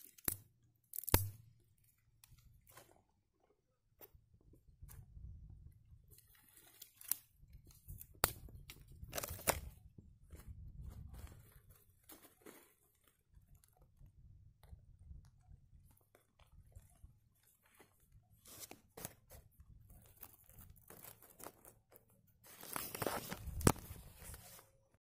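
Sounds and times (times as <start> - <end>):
dry twigs crackling and rustling: 0.0 - 3.0, 6.1 - 14.0, 15.8 - 24.6.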